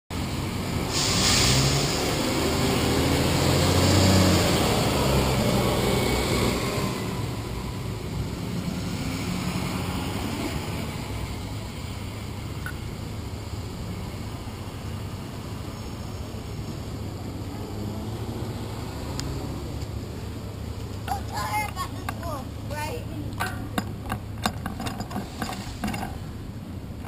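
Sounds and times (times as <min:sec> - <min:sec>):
street traffic: 0:00.1 - 0:27.0
truck diesel engine passing: 0:00.2 - 0:27.0
short hiss: 0:00.9 - 0:02.3.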